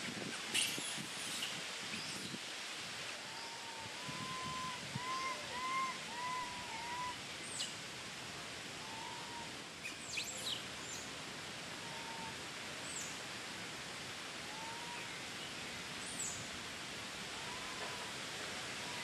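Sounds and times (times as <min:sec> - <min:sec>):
steady outdoor hiss: 0:00.0 - 0:19.0
short arched calls: 0:03.5 - 0:07.2.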